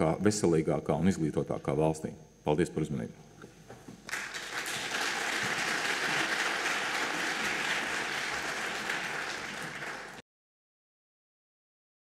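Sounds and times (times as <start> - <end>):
audience applauding: 4.1 - 10.2.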